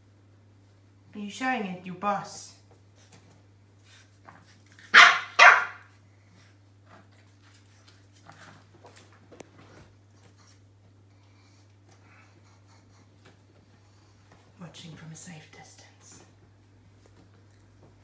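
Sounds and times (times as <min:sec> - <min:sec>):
puppy barking: 0:04.9 - 0:05.9
faint clicks and rustles: 0:06.4 - 0:18.0.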